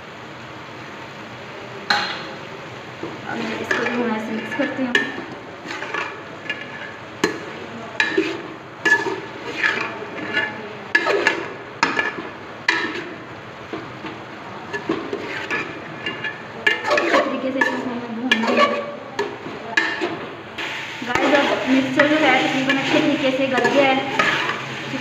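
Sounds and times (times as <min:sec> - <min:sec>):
metal spoon scraping pot: 0:03.4 - 0:07.4, 0:08.0 - 0:13.2, 0:14.7 - 0:20.2, 0:21.1 - 0:25.0.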